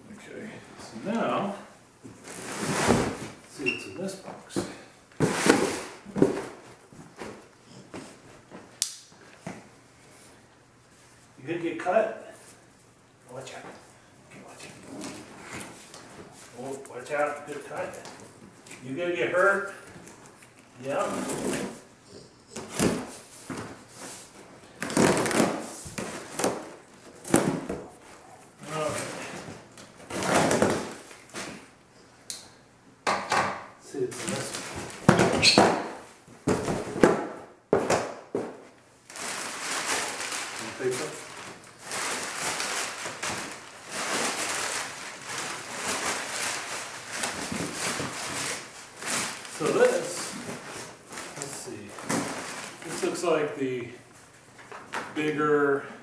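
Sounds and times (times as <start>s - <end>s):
packing paper rustling: 39.0s - 53.5s.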